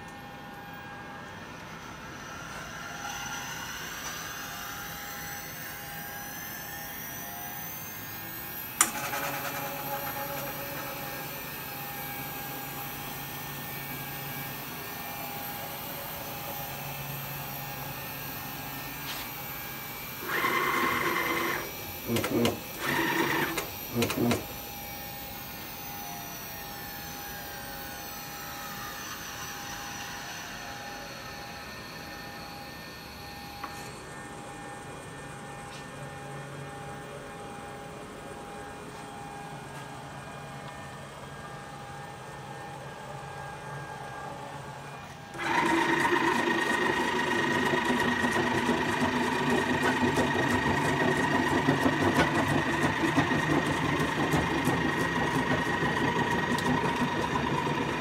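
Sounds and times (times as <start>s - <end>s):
mill spindle whine: 0.0s - 58.0s
tool cutting with rasping grind: 20.2s - 25.2s, 47.7s - 58.0s.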